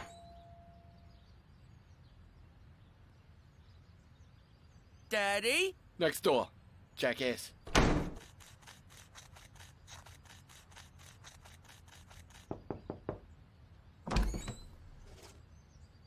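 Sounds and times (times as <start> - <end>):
quick cartoon footsteps: 8.0 - 13.2
knocks on wooden door: 12.5 - 13.3.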